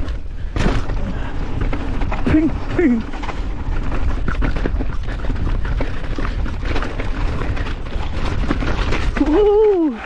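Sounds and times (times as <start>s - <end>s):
bike frame and chain rattling: 0.0s - 10.0s
bike tyres rumbling: 0.0s - 10.0s
wind buffeting microphone: 0.0s - 10.0s.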